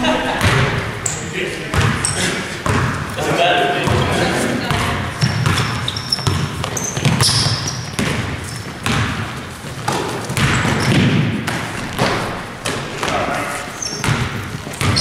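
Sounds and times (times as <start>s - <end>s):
players' voices: 0.0s - 7.8s, 12.2s - 15.0s
sneaker squeaks: 0.4s - 3.2s, 3.8s - 15.0s
basketball dribbling on hardwood: 1.7s - 3.2s, 3.8s - 15.0s.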